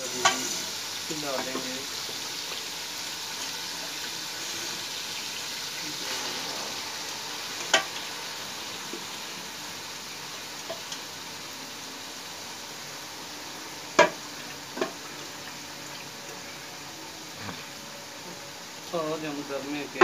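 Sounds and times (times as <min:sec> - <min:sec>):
spices sizzling in oil: 0:00.0 - 0:20.0.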